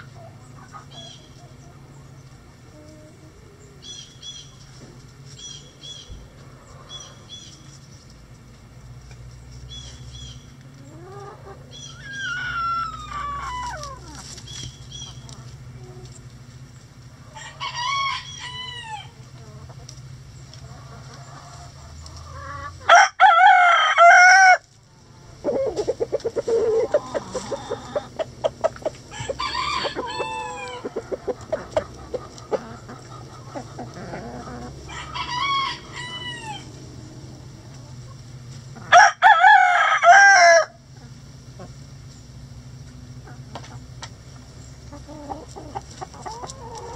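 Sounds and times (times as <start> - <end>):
hens clucking: 0.0 - 46.9
roosters crowing: 9.7 - 16.5, 17.1 - 19.8, 20.6 - 42.0, 44.8 - 46.9.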